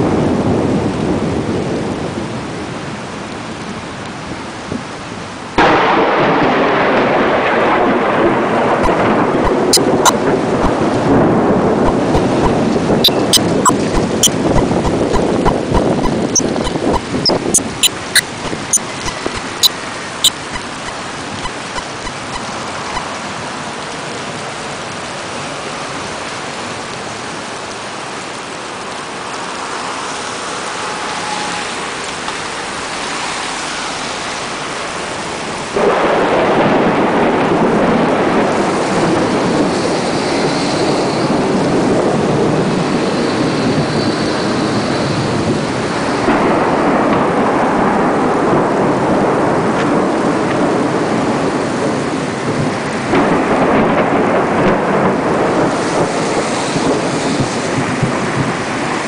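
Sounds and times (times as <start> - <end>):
heavy rain hiss: 9.0 - 59.0
sharp clicks: 11.9 - 19.6, 20.2 - 23.0.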